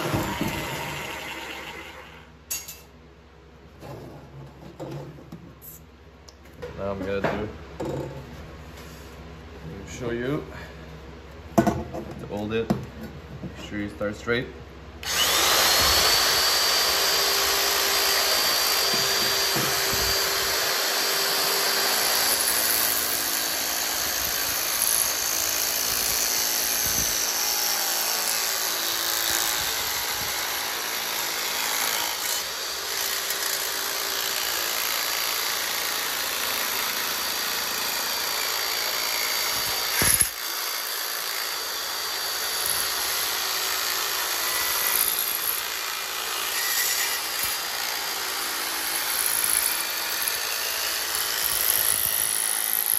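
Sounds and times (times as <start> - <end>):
electric metal shear whining: 0.0 - 2.8, 15.0 - 52.9.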